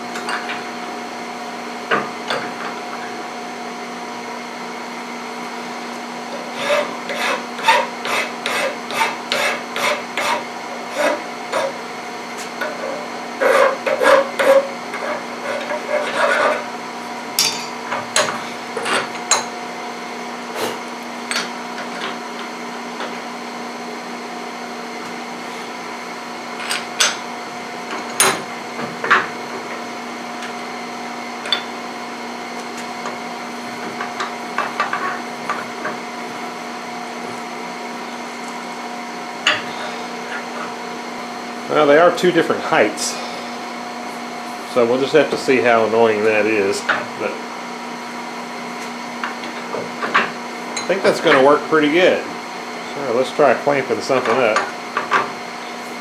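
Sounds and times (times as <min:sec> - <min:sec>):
file rasping on metal: 0:06.4 - 0:11.8, 0:12.6 - 0:16.7.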